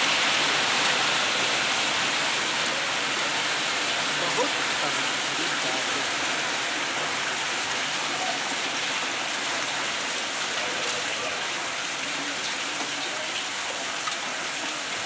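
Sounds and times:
heavy rain and hail on pavement: 0.0s - 15.0s.

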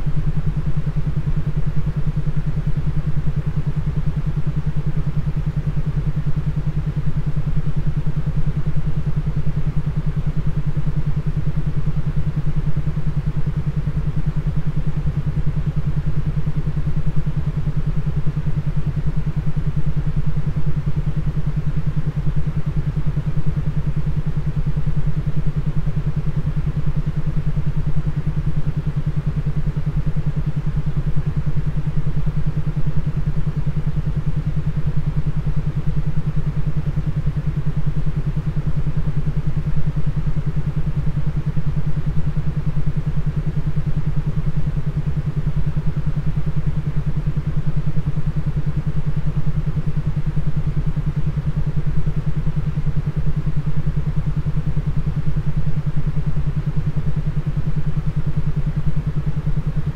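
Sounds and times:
pulsing low hum: 0.0s - 59.9s.

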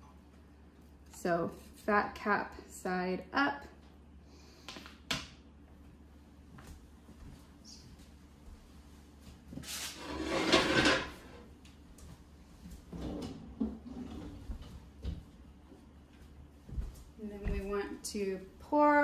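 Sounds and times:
drawer sliding: 9.9s - 11.2s.

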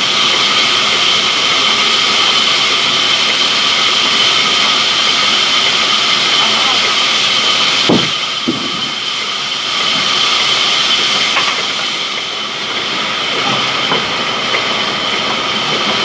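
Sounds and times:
band saw whine: 0.0s - 16.0s
log knocks: 7.9s - 8.9s.

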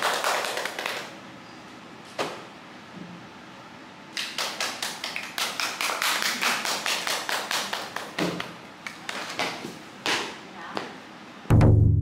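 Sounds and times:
small audience clapping: 0.0s - 1.2s, 4.1s - 9.6s.

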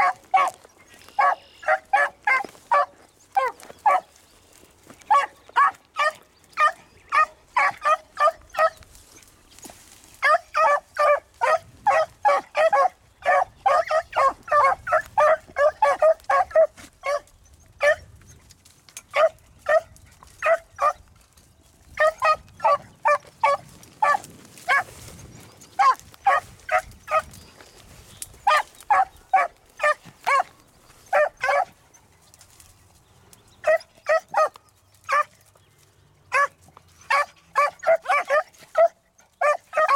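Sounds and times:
dog barking rapidly: 0.0s - 0.6s, 1.2s - 4.1s, 5.1s - 8.8s, 10.2s - 18.1s, 19.1s - 21.0s, 22.0s - 24.9s, 25.7s - 27.3s, 28.4s - 30.5s, 31.1s - 31.8s, 33.6s - 35.3s, 36.3s - 39.9s.

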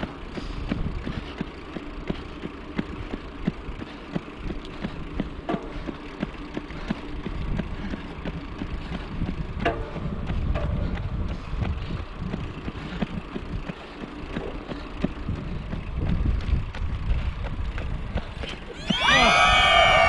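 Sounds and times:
wind rumble on microphone: 0.0s - 1.4s, 6.2s - 20.0s
running shoes striking asphalt: 0.0s - 20.0s.

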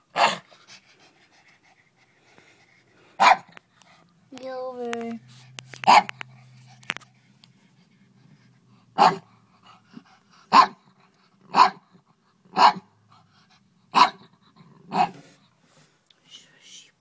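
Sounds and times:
dog barking: 0.1s - 0.4s, 3.2s - 3.5s, 5.8s - 6.2s, 9.0s - 9.3s, 10.5s - 10.8s, 11.5s - 11.9s, 12.5s - 12.9s, 13.9s - 14.3s, 14.9s - 15.2s.

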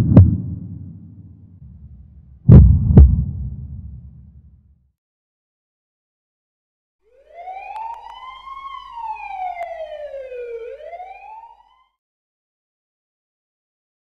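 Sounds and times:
siren wailing: 7.1s - 12.0s.

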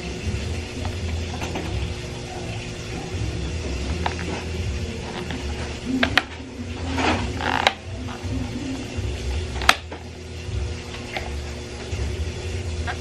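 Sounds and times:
plastic scraping on plastic: 3.6s - 8.5s, 12.8s - 13.0s.

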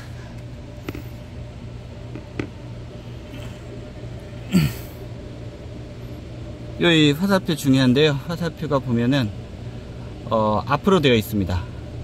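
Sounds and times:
steady low hum: 0.0s - 12.0s
person grunting: 4.5s - 5.0s.

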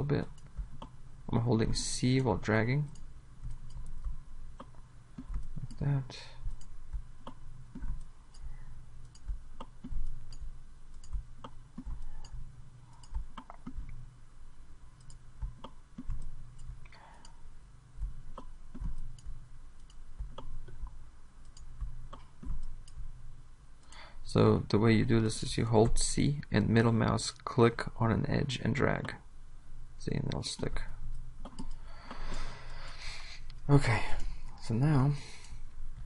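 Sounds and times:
low steady hum: 0.0s - 36.0s
computer mouse clicking: 2.2s - 5.8s, 6.4s - 14.0s, 15.0s - 17.4s, 18.0s - 23.1s, 30.3s - 32.9s.

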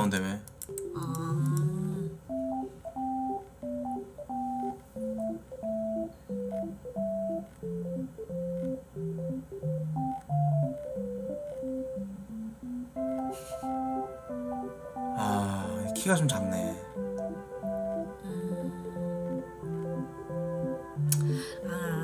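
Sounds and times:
simple keyboard tune: 0.0s - 22.0s
bass line: 1.0s - 2.2s.

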